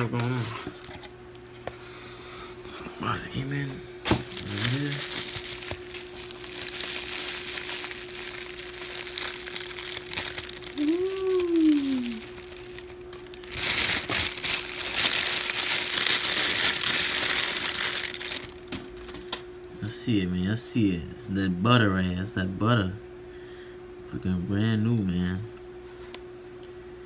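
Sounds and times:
bubble wrap and plastic crinkling: 0:04.1 - 0:19.4.

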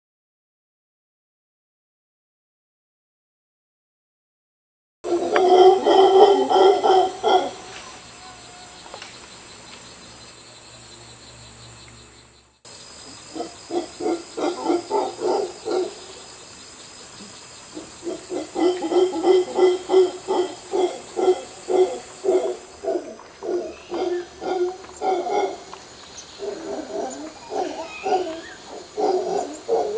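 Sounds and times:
howler monkeys calling: 0:05.1 - 0:09.5, 0:13.0 - 0:29.9
steady high hiss: 0:05.1 - 0:29.9.

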